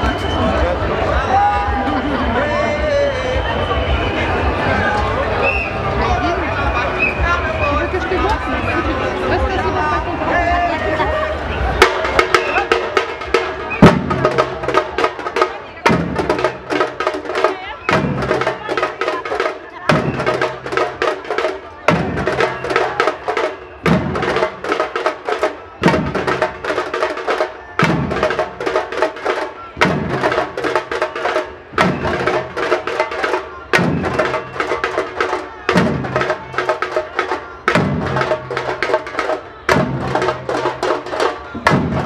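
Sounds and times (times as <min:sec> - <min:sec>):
marching drums playing fast rhythm: 0:11.6 - 0:42.0
heavy low drum strokes: 0:11.7 - 0:42.0.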